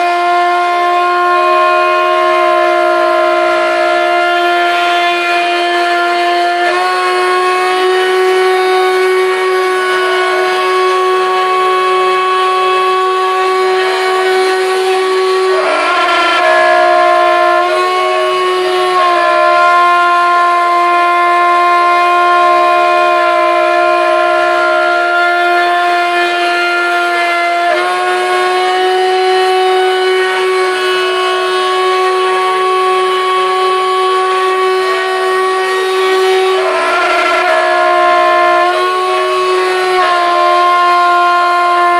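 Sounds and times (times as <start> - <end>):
router spindle whining cutting metal: 13.6 - 19.9, 34.3 - 41.9.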